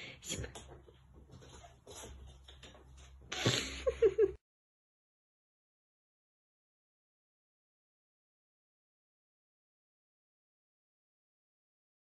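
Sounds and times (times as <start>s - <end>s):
kitten scampering on wooden floor: 0.3s - 3.4s.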